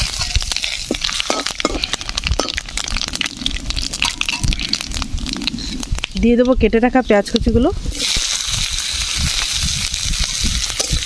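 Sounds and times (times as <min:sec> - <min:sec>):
metal spatula scraping pan: 0:00.0 - 0:02.6
spices crackling in hot oil: 0:00.0 - 0:11.0.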